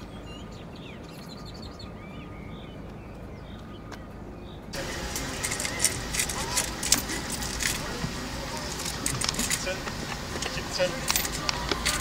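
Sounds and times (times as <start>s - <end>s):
outdoor background noise: 0.0s - 12.0s
small birds chirping: 0.0s - 12.0s.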